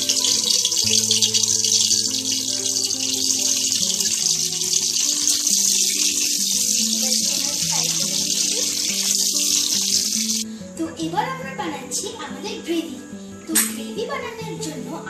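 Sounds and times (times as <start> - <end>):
potatoes sizzling in hot oil: 0.0 - 10.4
background music of held notes: 0.0 - 15.0.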